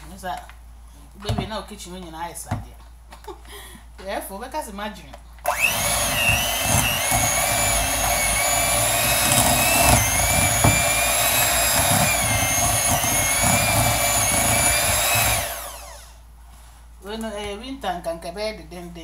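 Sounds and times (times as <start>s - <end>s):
electric hand mixer whipping: 5.5s - 16.2s.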